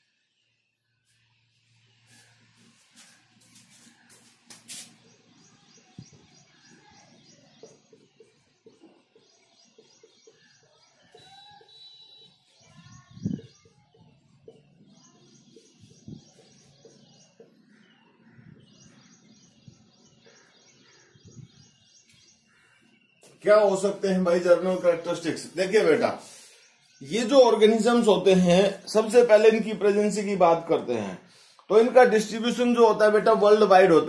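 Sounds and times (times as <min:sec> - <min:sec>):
small birds chirping: 0:00.0 - 0:34.0.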